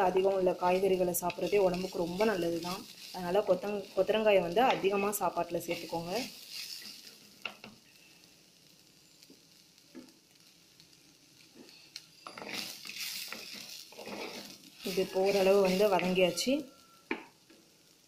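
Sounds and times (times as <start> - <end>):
vegetables sizzling in oil: 0.0 - 18.0
spatula stirring in clay pot: 12.2 - 16.4.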